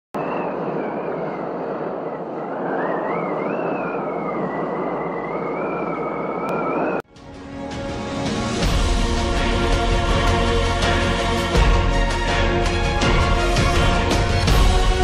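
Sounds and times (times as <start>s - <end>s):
steady rushing noise: 0.2s - 7.0s
wavering whistling tones: 0.2s - 7.0s.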